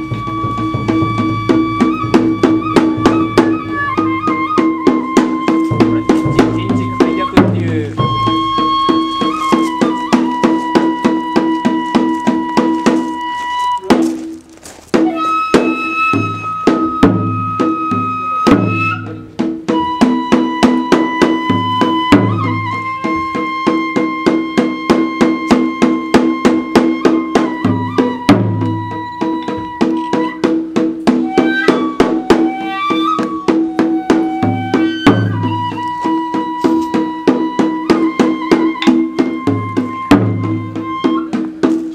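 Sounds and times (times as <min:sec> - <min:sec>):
deep drum thumps: 0:00.0 - 0:23.9
bamboo flute long notes: 0:00.0 - 0:41.9
steady drum beat: 0:00.0 - 0:41.9.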